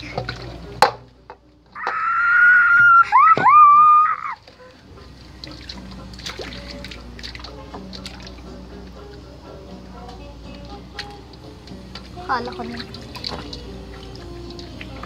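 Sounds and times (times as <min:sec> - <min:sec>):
child squealing: 0:01.8 - 0:04.4.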